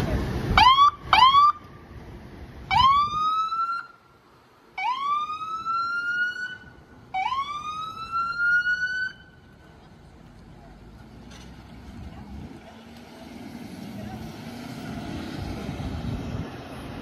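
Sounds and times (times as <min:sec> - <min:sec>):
ambulance siren whoops: 0:02.7 - 0:03.9, 0:04.8 - 0:09.3.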